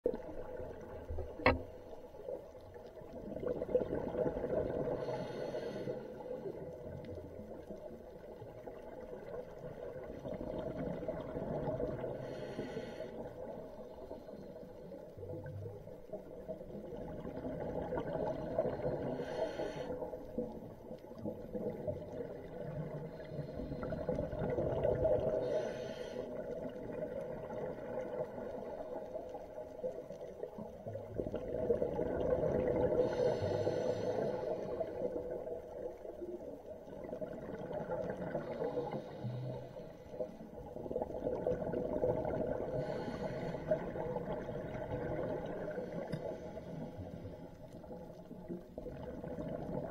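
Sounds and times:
hiss of exhaled bubbles: 3.2 - 7.0, 16.8 - 20.7, 31.0 - 35.9, 36.9 - 49.9
breathing through a regulator: 4.8 - 6.7, 12.0 - 15.2, 18.2 - 20.4, 23.1 - 24.4, 25.2 - 26.7, 32.7 - 35.3, 38.3 - 40.5, 42.7 - 44.5, 45.5 - 47.7.

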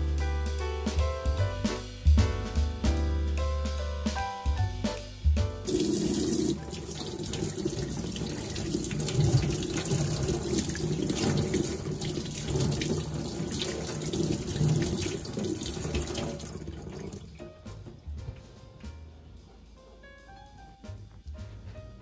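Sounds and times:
tap running into steel sink: 5.7 - 18.4.

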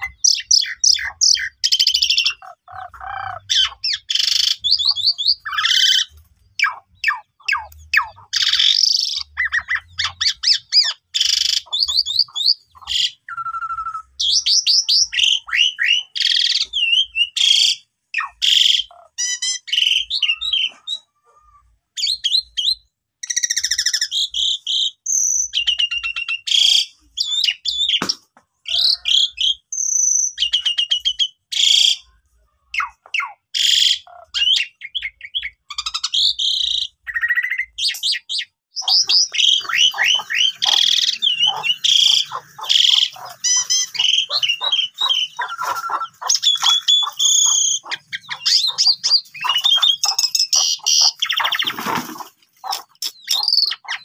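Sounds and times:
starling singing: 0.0 - 21.2, 32.8 - 54.0.

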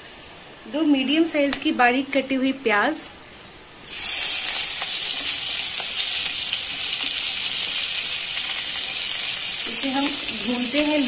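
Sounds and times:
onions sizzling in hot oil: 3.8 - 11.0.

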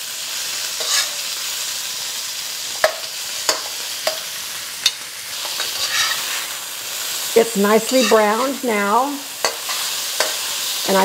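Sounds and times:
meat sizzling in a wok: 0.0 - 11.0
metal spatula scraping pan: 0.8 - 1.3, 2.8 - 6.6, 7.8 - 8.7, 9.4 - 11.0.

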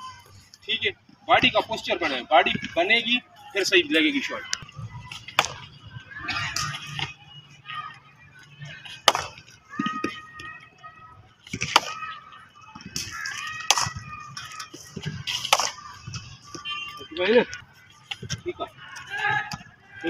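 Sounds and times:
cricket bat striking ball: 9.0 - 9.4.

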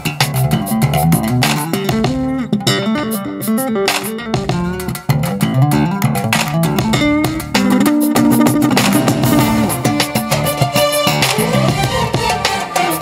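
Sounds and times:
bass guitar: 0.0 - 13.0
plucked guitar melody: 0.0 - 13.0
sharp percussive hits: 0.0 - 13.0.

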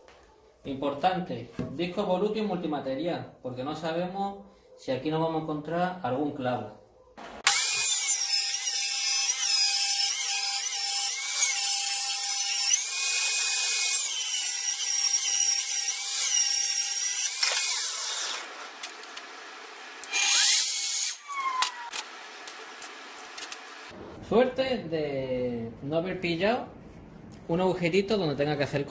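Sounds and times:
table saw ripping wood: 7.2 - 24.0.

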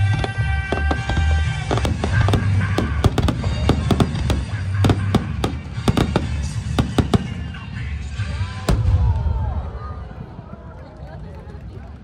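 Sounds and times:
fireworks bangs: 0.0 - 7.7.

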